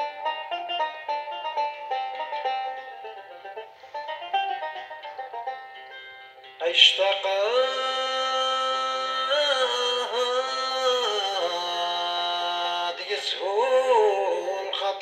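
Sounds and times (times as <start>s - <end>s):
man singing: 6.6s - 15.0s.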